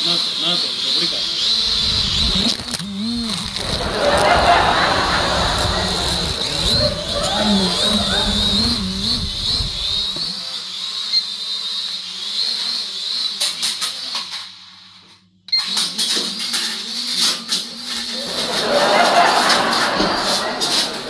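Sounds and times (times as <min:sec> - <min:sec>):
drone propellers whining: 0:00.2 - 0:13.4, 0:17.9 - 0:21.0.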